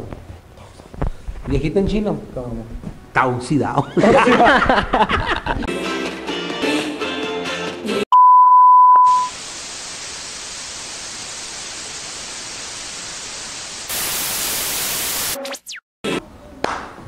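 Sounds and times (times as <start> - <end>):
music: 5.7 - 8.1
loud steady beep: 8.2 - 9.3
television static hiss: 9.3 - 15.6.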